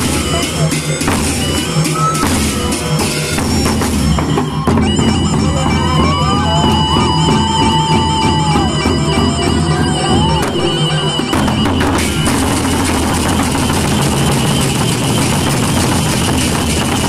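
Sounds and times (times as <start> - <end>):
barrel drums beaten: 0.0 - 17.0
reedy wind instrument melody: 0.0 - 17.0.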